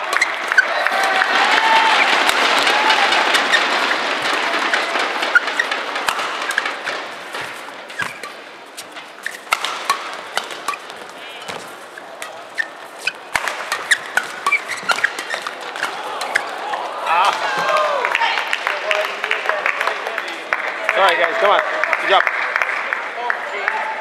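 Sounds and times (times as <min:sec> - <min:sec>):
crowd applause: 0:00.0 - 0:07.4, 0:13.3 - 0:24.0
scattered sharp claps and knocks: 0:00.0 - 0:11.7.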